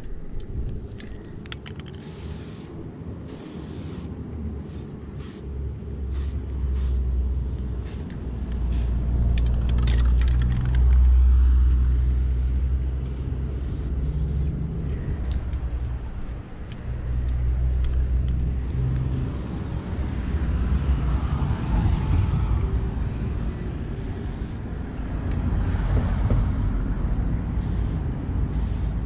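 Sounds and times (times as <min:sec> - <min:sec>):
vehicle engine rumble: 0:00.0 - 0:29.0
spray paint can hissing: 0:01.8 - 0:07.1, 0:07.7 - 0:14.6, 0:18.9 - 0:22.3, 0:23.9 - 0:24.6, 0:25.8 - 0:26.8, 0:27.5 - 0:29.0.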